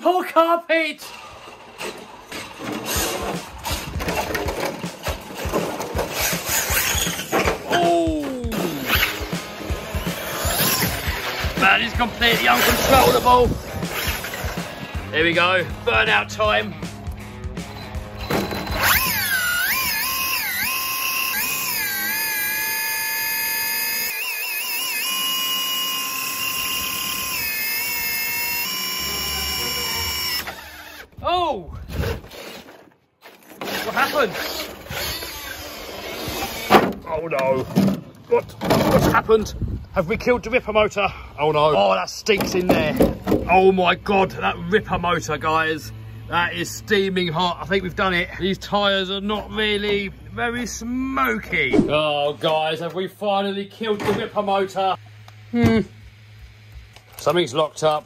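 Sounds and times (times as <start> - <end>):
electric motor whining: 5.0 - 7.7, 8.4 - 15.1, 17.1 - 31.2, 31.9 - 36.9, 54.6 - 58.0.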